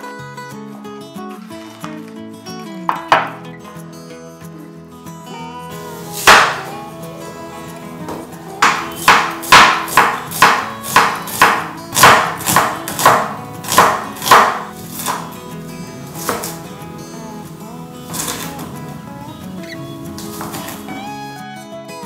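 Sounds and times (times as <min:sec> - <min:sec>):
knife chopping onion on wooden board: 0:02.9 - 0:03.4, 0:06.2 - 0:06.7, 0:08.1 - 0:15.4, 0:16.2 - 0:16.6.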